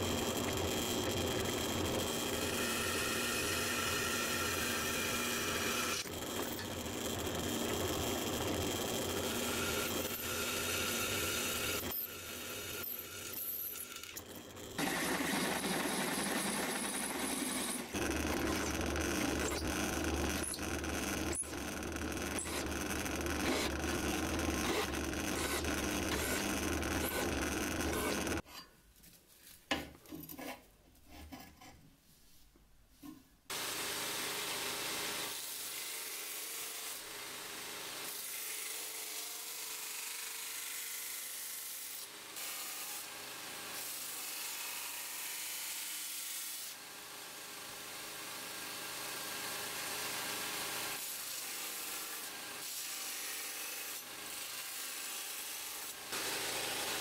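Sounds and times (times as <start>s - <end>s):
belt grinder grinding steel: 0.0s - 28.4s
drill press cutting steel: 9.2s - 28.4s.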